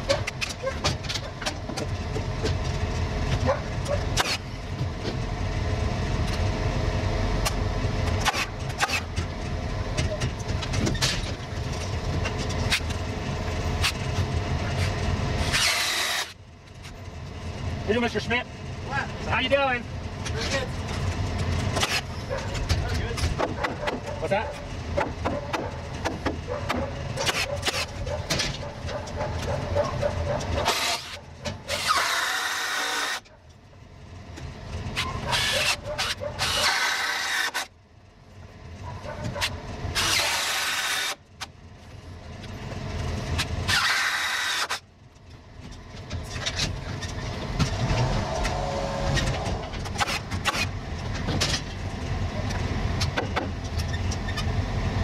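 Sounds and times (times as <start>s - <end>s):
low rumble of machinery: 0.0s - 55.0s
cordless power drill bursts: 43.7s - 44.8s.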